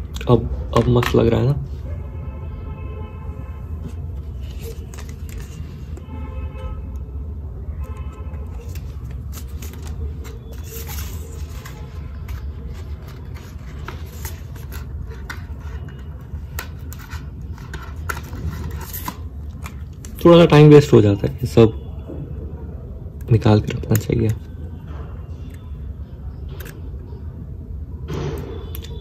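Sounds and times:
packaging clicking and rustling: 4.3s - 6.0s, 8.5s - 20.3s.

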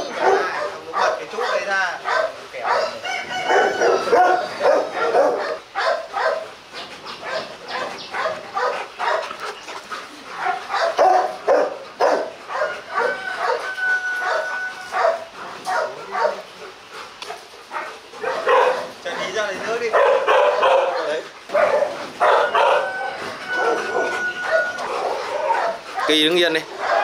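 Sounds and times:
dogs barking and yipping: 0.0s - 27.0s
dog whining: 10.7s - 15.8s, 21.9s - 26.2s.

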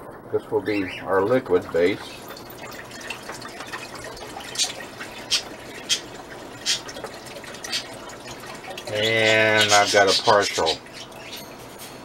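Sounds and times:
liquid pouring into a pot: 1.2s - 11.3s.

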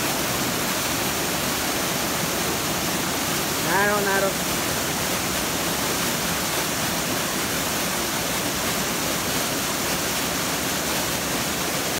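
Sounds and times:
waterfall splashing into pool: 0.0s - 11.9s.

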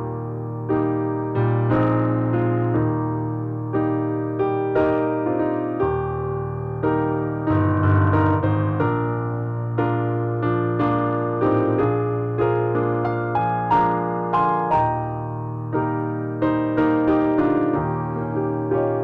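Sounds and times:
slow piano chords: 0.0s - 19.0s
low bass notes: 5.8s - 16.0s.

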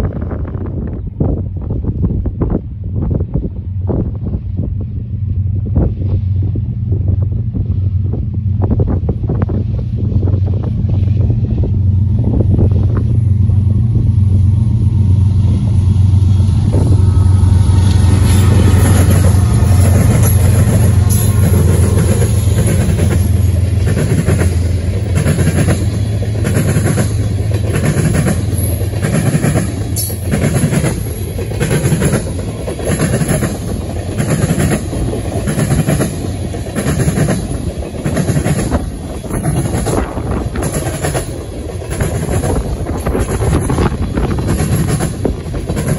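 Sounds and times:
locomotive engine drone: 0.0s - 45.9s
train wheels clacking over rail joints: 16.7s - 45.9s.

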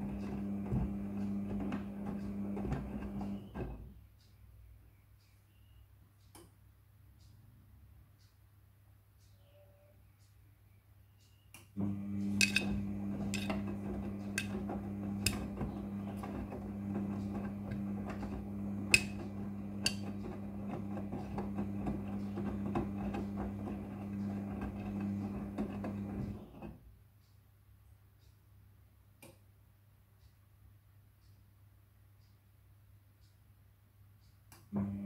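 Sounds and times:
washing machine motor hum: 0.0s - 4.0s, 11.8s - 26.9s, 34.7s - 35.0s.

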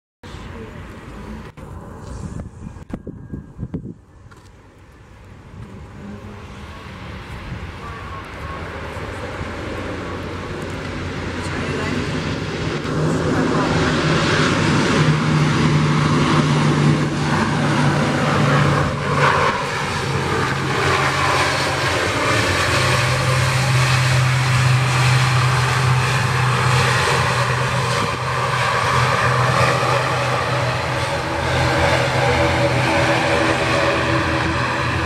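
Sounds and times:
turboprop airliner taxiing: 0.3s - 35.0s.

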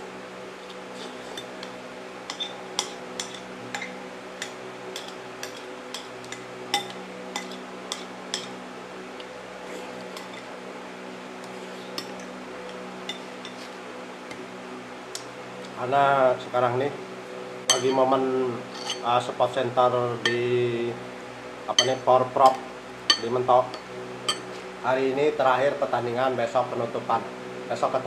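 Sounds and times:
steady low hum: 0.0s - 28.0s
cutlery clinking on a plate: 2.3s - 8.6s, 17.7s - 18.0s, 18.7s - 19.1s, 21.8s - 22.0s, 24.3s - 24.6s.

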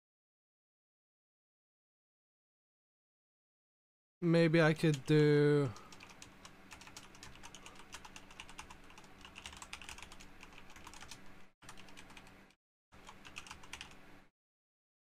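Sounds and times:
typing on a computer keyboard: 5.8s - 12.4s, 13.0s - 14.0s.

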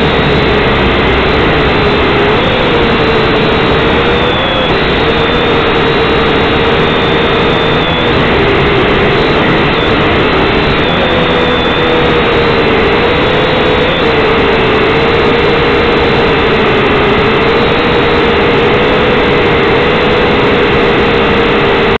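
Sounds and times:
drone propellers buzzing: 0.0s - 22.0s.

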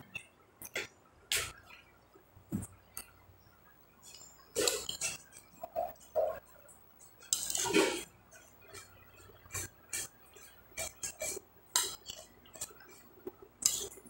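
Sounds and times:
metal spoon scraping a plate: 7.2s - 8.9s, 9.5s - 13.0s.

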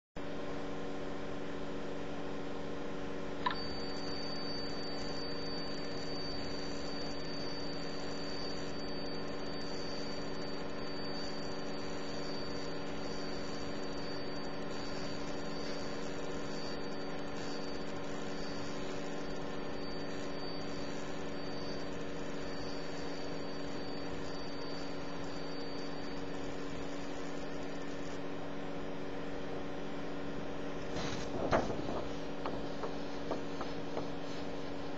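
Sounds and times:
laser marking machine hum: 0.3s - 34.9s
high-pitched whine: 3.4s - 28.2s.

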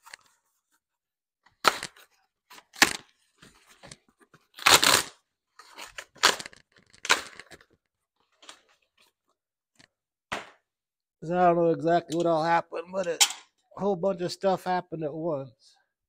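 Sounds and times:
cardboard ripping and rustling: 1.6s - 7.6s.

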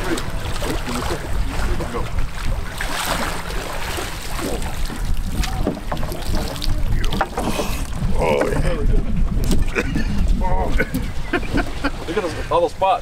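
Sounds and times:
wind buffeting microphone: 0.0s - 13.0s
water splashing off a net: 2.8s - 6.8s.

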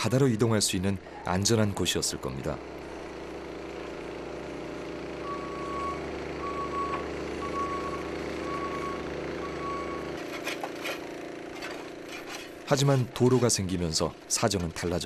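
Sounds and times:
loader engine running: 0.0s - 15.0s
reversing alarm beeps: 5.2s - 10.1s.

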